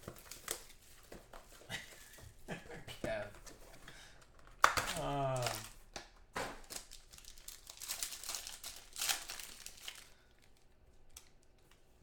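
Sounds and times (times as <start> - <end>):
plastic wrapper crinkling and tearing: 4.5 - 5.8, 6.5 - 11.8.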